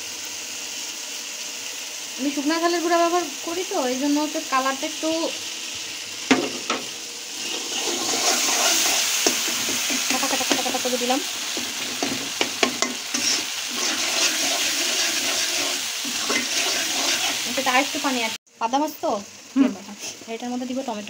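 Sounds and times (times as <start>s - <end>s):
paste sizzling in a wok: 0.0s - 21.0s
metal spatula scraping a pan: 6.7s - 10.8s, 11.5s - 17.9s.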